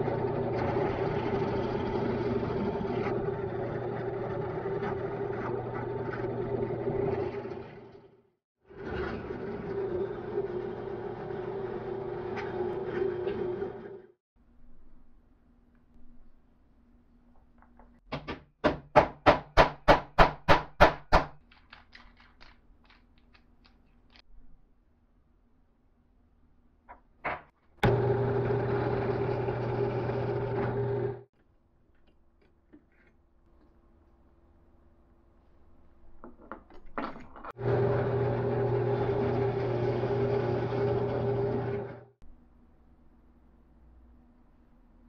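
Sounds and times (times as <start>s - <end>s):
drill press motor humming: 0.0s - 8.1s, 8.7s - 14.1s, 27.8s - 31.3s, 37.6s - 42.2s.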